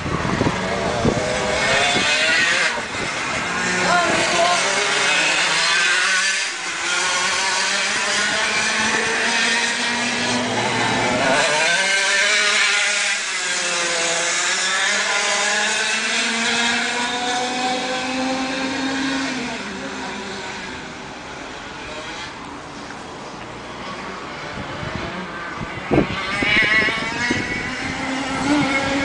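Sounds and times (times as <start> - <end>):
go-kart engines: 0.0 - 29.0.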